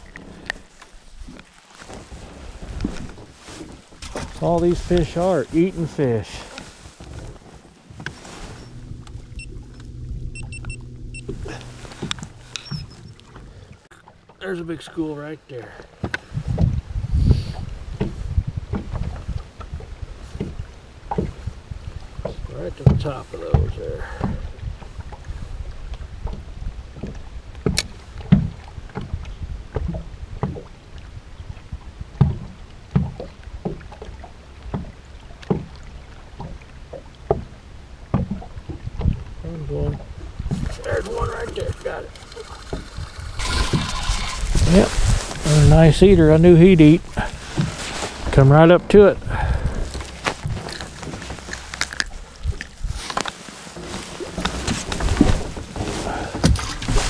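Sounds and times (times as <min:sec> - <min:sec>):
waves slapping boat hull: 0:00.0 - 0:57.0
low steady rumble: 0:07.3 - 0:13.9
trolling motor humming: 0:07.9 - 0:13.9, 0:40.5 - 0:47.4
short high electronic beeps: 0:08.6 - 0:11.4, 0:12.6 - 0:13.2.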